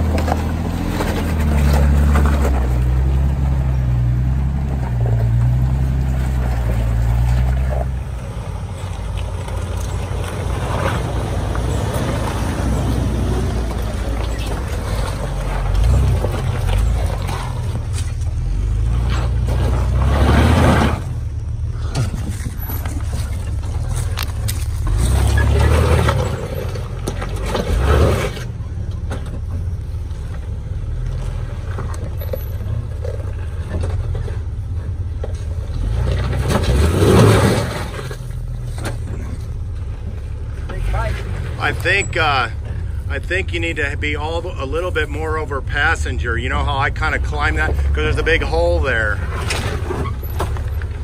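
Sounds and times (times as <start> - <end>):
tyres scraping over rock: 0.0 - 3.6, 4.5 - 21.2, 21.8 - 28.6
car engine revving under load: 0.0 - 51.0.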